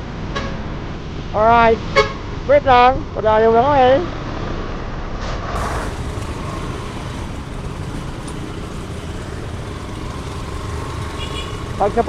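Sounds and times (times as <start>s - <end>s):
road noise: 0.0s - 12.0s
surrounding traffic: 0.0s - 12.0s
motorcycle engine: 5.6s - 12.0s.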